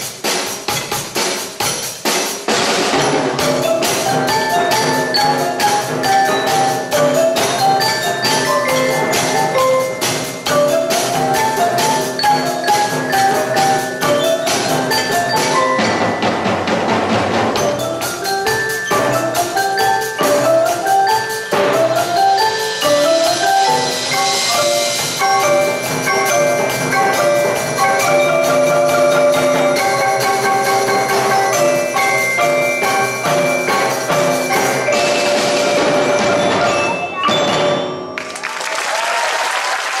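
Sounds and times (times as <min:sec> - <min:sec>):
drum kit beat: 0:00.0 - 0:38.3
marimbas playing melodic figures: 0:03.0 - 0:38.4.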